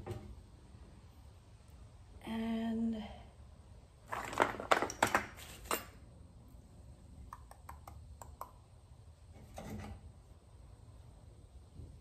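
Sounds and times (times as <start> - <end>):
metal tools clattering on workbench: 4.1 - 6.0.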